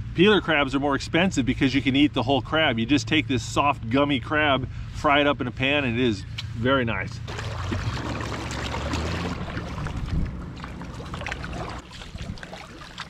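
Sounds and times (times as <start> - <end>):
low rumble: 7.3 - 12.5
paddle drips and splashes: 7.3 - 13.0
water splashing and trickling: 7.3 - 13.0.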